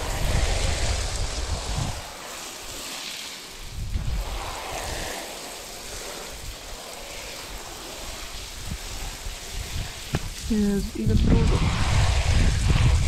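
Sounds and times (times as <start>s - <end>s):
hose spraying water: 0.0s - 13.0s
low rumbles on microphone: 9.6s - 13.0s.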